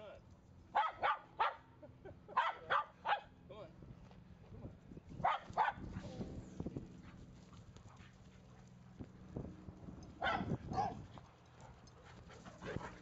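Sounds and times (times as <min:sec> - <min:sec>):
dog barking: 0:00.8 - 0:01.6, 0:02.4 - 0:03.3, 0:05.2 - 0:05.8, 0:10.2 - 0:11.0.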